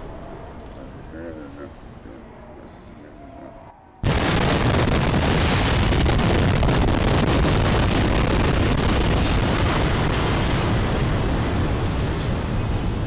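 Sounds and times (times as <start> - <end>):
explosion roar: 4.0 - 11.8.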